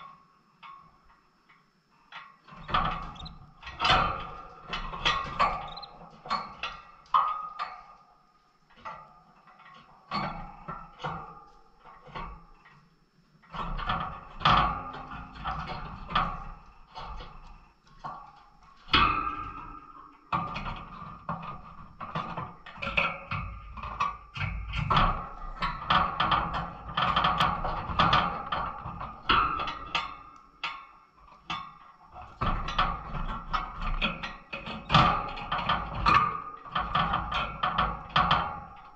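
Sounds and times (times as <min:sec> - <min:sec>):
birds hopping in cage: 0:02.5 - 0:06.3.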